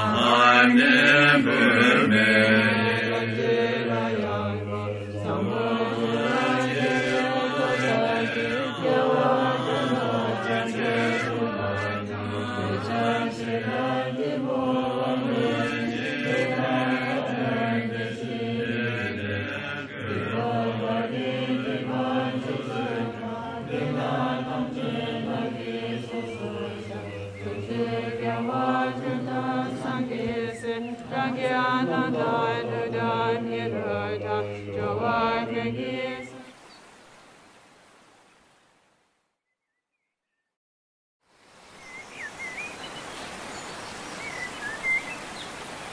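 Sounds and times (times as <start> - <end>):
voices chanting prayers: 0.0 - 36.5.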